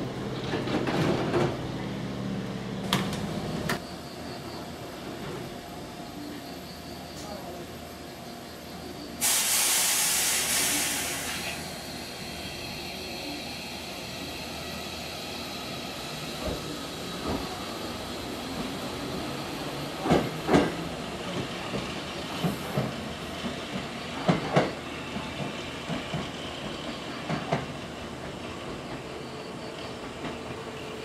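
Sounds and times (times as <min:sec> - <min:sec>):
electric train moving: 0:00.1 - 0:31.0.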